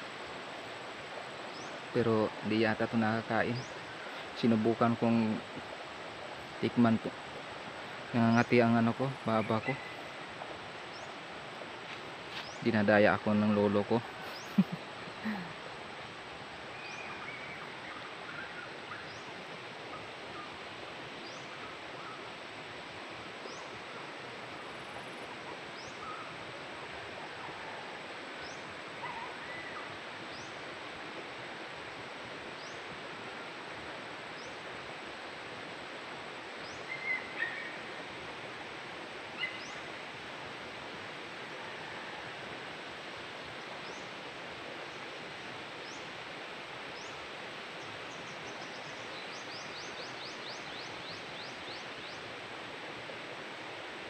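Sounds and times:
steady hiss: 0.0 - 54.0
birds calling: 1.1 - 7.2, 7.8 - 15.7, 16.6 - 22.4, 36.6 - 38.1, 39.3 - 40.1.

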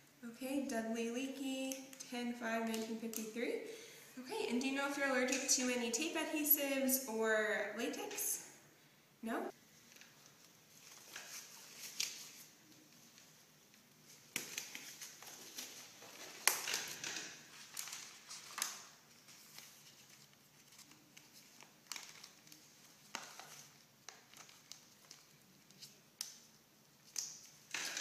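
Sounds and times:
packets crinkling and rustling: 9.9 - 28.0.

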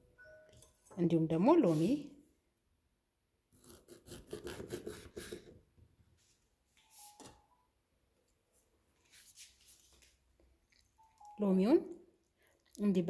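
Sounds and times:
knife slicing lime on board: 3.6 - 5.5.

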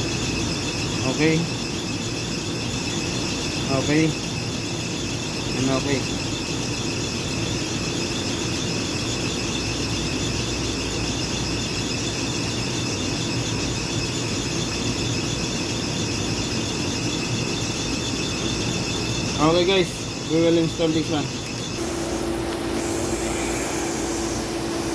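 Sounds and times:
high-pitched machine whine: 0.0 - 24.9
low hum and hiss: 21.8 - 24.9.

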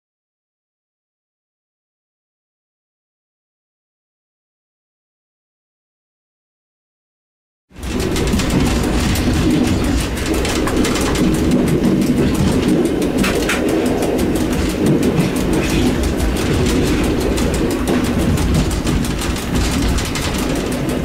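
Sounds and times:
train low rumble: 7.7 - 21.0
rapid clatter of clicks: 7.8 - 21.0.

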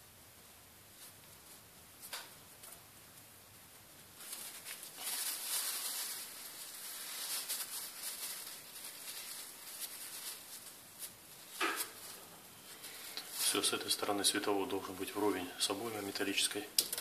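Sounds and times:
tissue paper rustling: 4.0 - 17.0.

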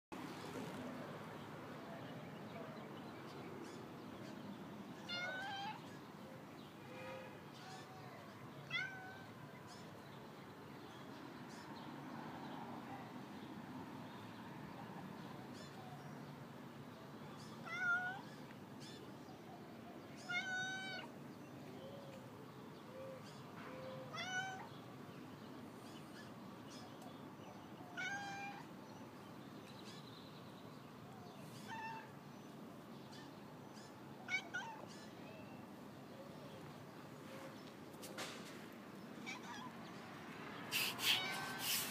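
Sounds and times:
cat meowing: 5.0 - 5.8, 8.6 - 9.3, 17.6 - 18.3, 20.2 - 21.1, 24.1 - 24.7, 27.9 - 28.7, 34.3 - 34.9, 39.2 - 39.7, 40.8 - 41.9.

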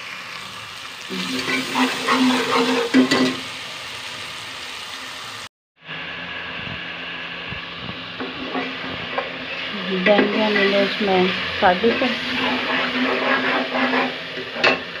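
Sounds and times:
spices sizzling in a pot: 0.0 - 15.0
metal ladle scraping pot: 1.3 - 3.4, 11.7 - 15.0.

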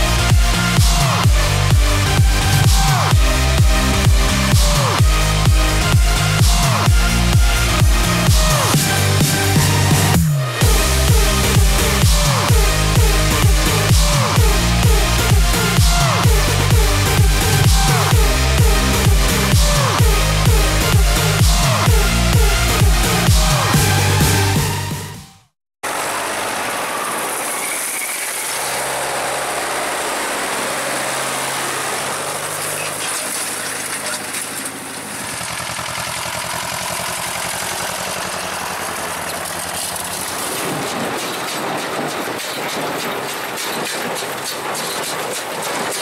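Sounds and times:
tractor diesel engines running: 0.0 - 25.2, 25.8 - 46.0
rhythmic clatter of hay machinery: 25.9 - 46.0.

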